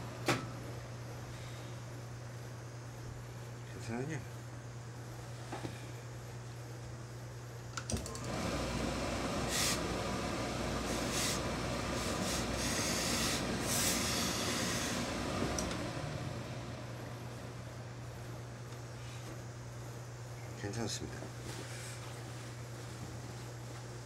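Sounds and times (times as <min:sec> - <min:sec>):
steam hissing: 0:09.2 - 0:16.4
steam spurts: 0:09.3 - 0:10.2, 0:10.8 - 0:16.2.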